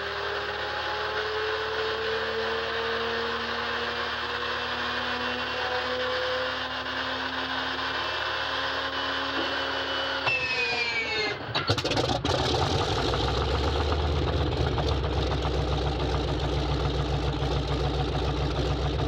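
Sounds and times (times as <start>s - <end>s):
engine starter whine rising: 8.1s - 14.4s.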